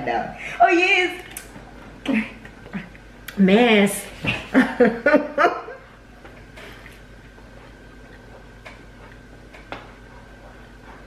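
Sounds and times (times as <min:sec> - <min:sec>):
faint steady hum: 0:00.0 - 0:11.0
women's voices and laughter: 0:04.2 - 0:05.8.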